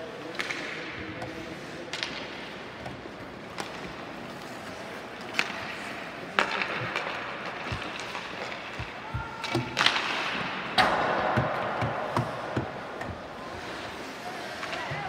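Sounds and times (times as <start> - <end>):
hockey sticks clacking puck: 0.0 - 15.0.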